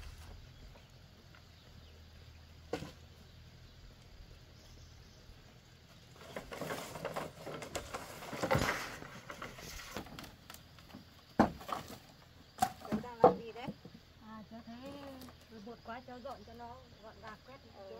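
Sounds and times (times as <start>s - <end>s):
bamboo sticks rustling and clattering: 5.8s - 14.1s, 14.8s - 15.6s.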